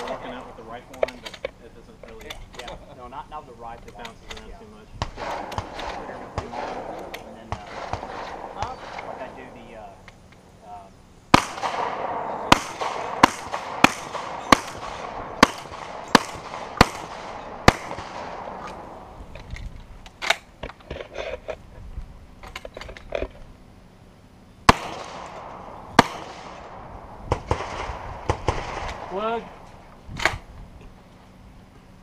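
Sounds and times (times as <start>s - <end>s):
gun clicks and rattles: 0.9s - 2.8s, 3.8s - 4.5s, 18.6s - 21.6s, 22.4s - 23.5s
shotgun shots with echo: 5.0s - 9.7s, 11.3s - 19.1s, 24.7s - 29.6s.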